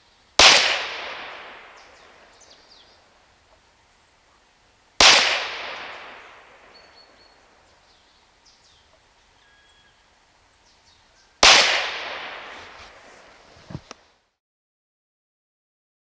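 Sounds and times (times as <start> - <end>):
air pistol shots: 0.4 - 1.8, 5.0 - 6.7, 11.4 - 12.8
gunshot echo: 0.4 - 2.1, 5.0 - 6.8, 11.4 - 13.0.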